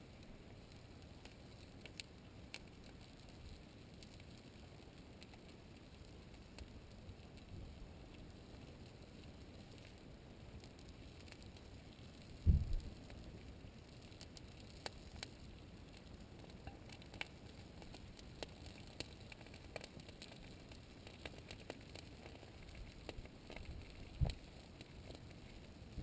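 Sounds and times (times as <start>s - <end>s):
cooling lava crust crackling: 0.0s - 26.0s
low thump: 12.5s - 12.8s.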